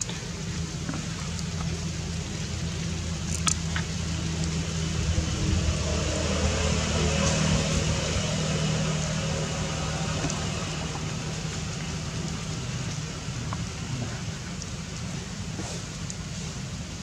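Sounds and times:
low rumble: 0:00.0 - 0:15.6.

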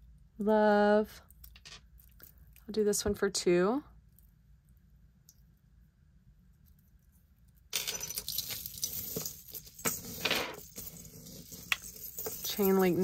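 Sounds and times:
metal chain necklace jangling: 0:07.8 - 0:13.0.

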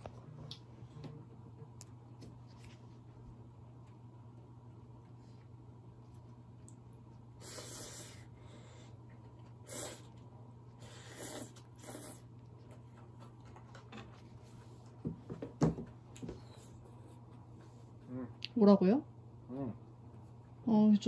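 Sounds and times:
cat hissing: 0:07.4 - 0:08.3, 0:09.6 - 0:10.1, 0:10.8 - 0:12.3.

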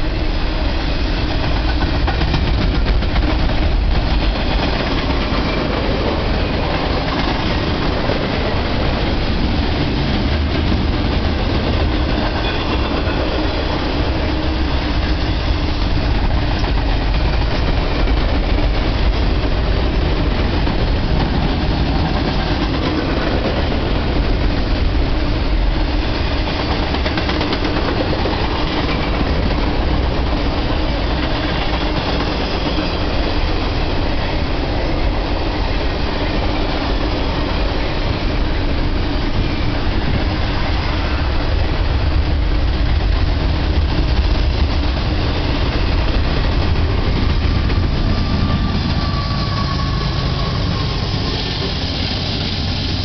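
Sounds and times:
freight train rumbling and rattling: 0:00.0 - 0:53.0.

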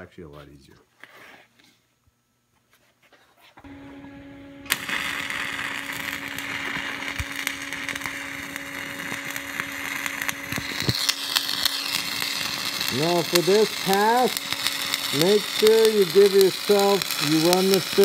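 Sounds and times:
welder hum: 0:03.6 - 0:18.0
welding arc crackling hiss: 0:03.7 - 0:18.0.

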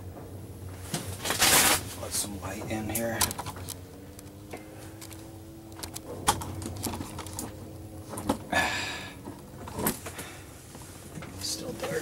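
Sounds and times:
low steady hum: 0:00.0 - 0:12.0
short rustle: 0:00.8 - 0:02.3.

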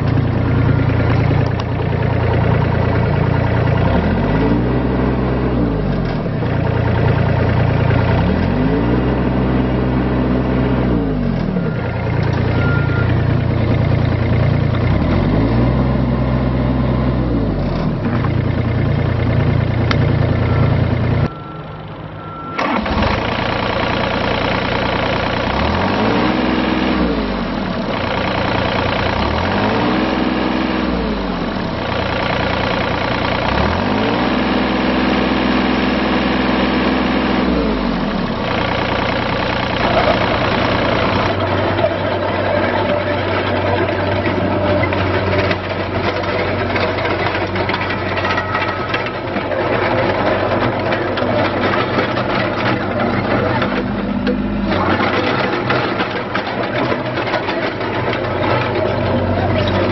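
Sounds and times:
excavator diesel engine revving: 0:00.0 - 0:59.9.

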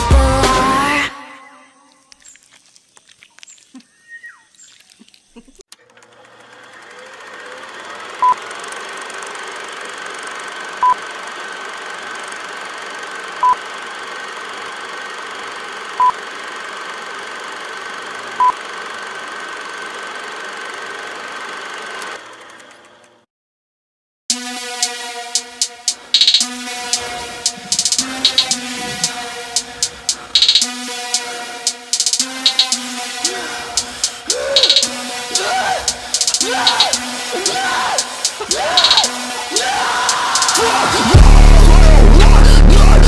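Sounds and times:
held high tone: 0:25.4 - 0:41.8
short electronic beeps: 0:25.8 - 0:30.7, 0:32.0 - 0:32.8, 0:33.8 - 0:35.0, 0:35.9 - 0:37.1, 0:38.0 - 0:39.2
faint ticks: 0:27.4 - 0:30.6.

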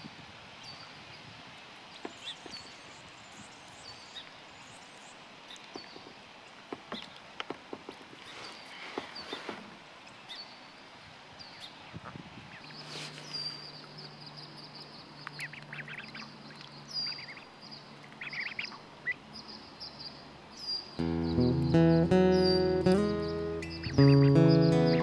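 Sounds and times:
ducklings peeping: 0:12.5 - 0:25.0
acoustic guitar music: 0:21.0 - 0:25.0.

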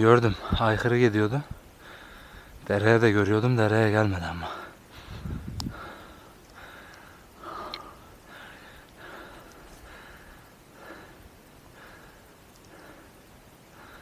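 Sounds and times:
man breathing: 0:01.7 - 0:02.6, 0:04.4 - 0:14.0.

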